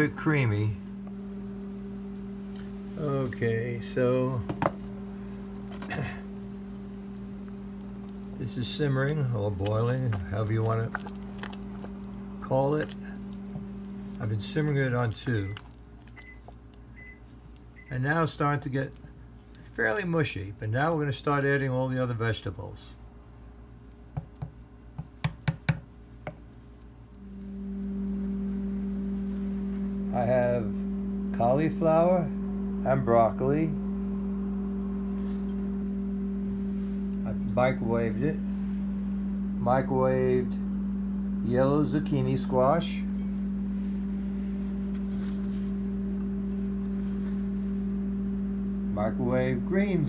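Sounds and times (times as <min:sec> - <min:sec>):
electrical hum: 0:00.0 - 0:50.0
wooden spoon stirring thick soup: 0:06.5 - 0:16.7.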